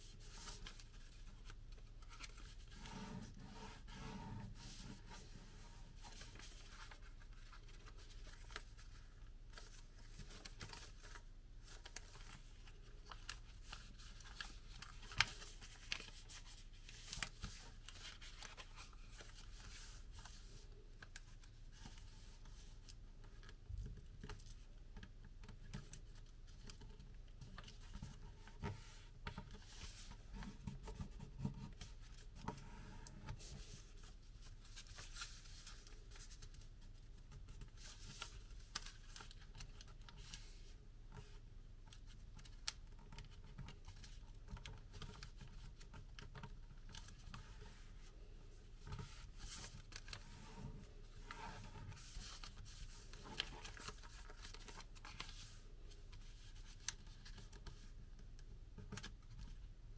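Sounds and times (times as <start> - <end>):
paper being folded and creased: 0.0 - 57.9.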